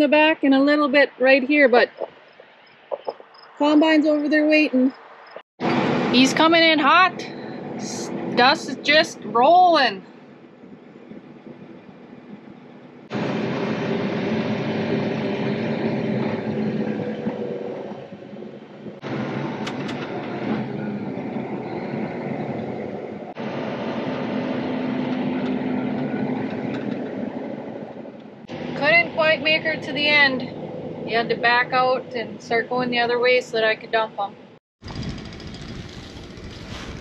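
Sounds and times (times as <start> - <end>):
tractor engine running: 34.8 - 37.0.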